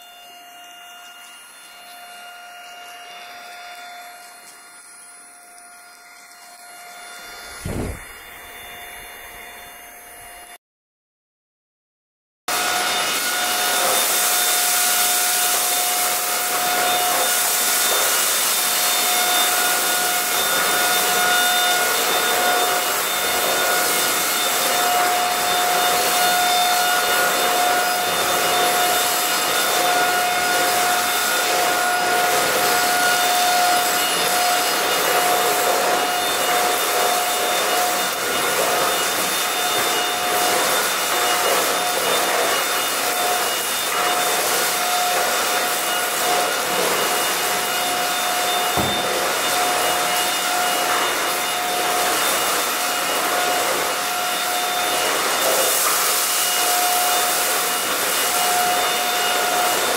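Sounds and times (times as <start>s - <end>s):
stick vacuum running: 0.0s - 10.6s, 12.5s - 59.9s.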